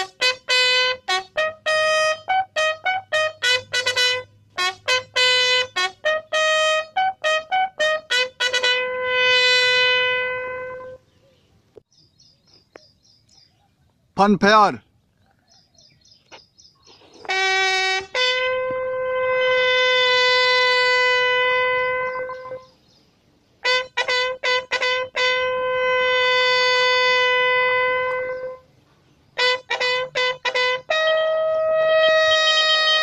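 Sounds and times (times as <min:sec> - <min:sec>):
bugle call: 0:00.0 - 0:11.1, 0:17.2 - 0:22.8, 0:23.6 - 0:28.7, 0:29.4 - 0:33.0.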